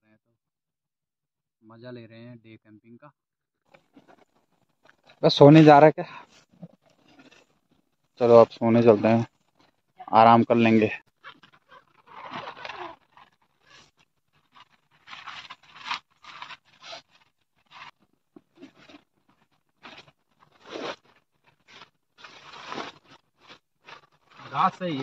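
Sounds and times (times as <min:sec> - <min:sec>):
foam mat and tent fabric rustling: 0:11.2 - 0:25.0.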